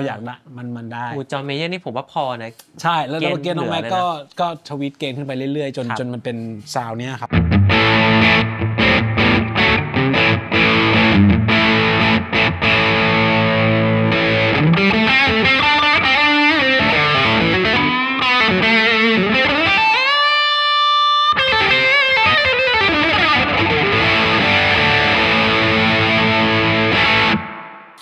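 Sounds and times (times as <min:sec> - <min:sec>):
overdriven electric guitar: 0:07.3 - 0:28.0.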